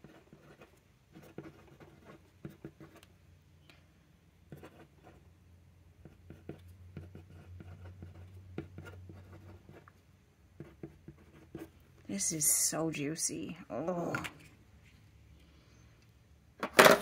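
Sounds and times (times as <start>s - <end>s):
fountain pen scratching on paper: 0.0s - 3.0s, 4.5s - 5.2s, 6.0s - 9.9s, 10.6s - 11.8s.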